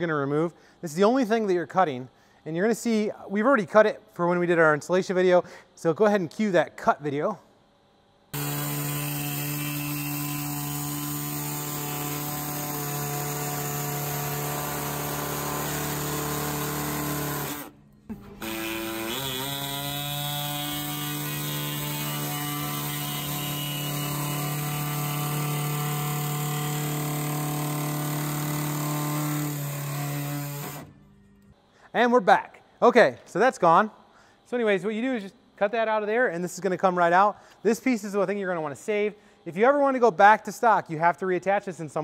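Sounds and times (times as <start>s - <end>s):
small power tool cutting plastic: 8.3s - 31.0s.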